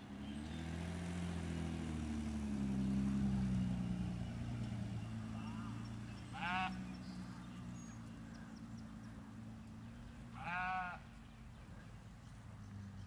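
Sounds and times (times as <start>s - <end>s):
lamb bleating: 6.3s - 6.8s, 10.4s - 11.0s.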